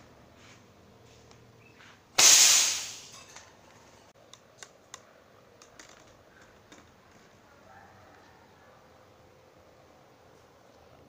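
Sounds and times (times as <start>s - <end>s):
air rifle blast: 2.2s - 3.1s.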